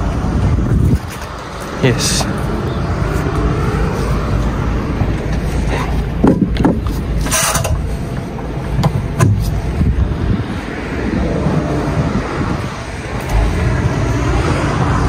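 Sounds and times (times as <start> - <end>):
diesel truck engine rumbling: 0.0 - 15.0
knocks and clatters: 5.1 - 9.6.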